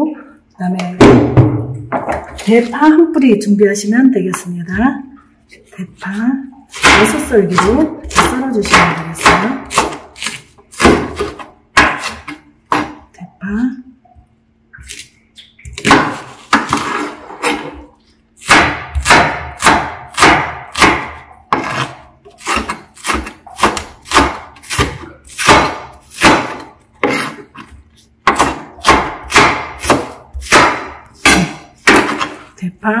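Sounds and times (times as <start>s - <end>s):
knife chopping on plastic board: 6.7s - 13.1s, 15.7s - 17.8s, 18.4s - 32.5s.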